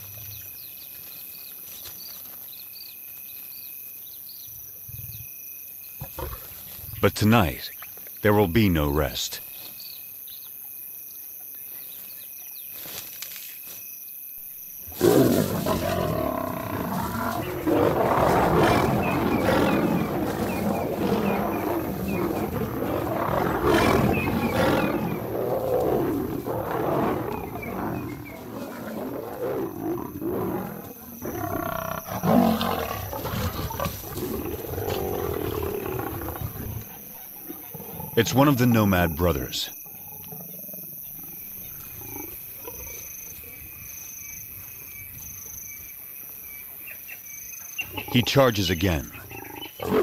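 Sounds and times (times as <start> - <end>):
insects chirping: 0.0 - 50.0
lions growling and snarling: 6.0 - 7.6, 14.8 - 43.9, 47.8 - 50.0.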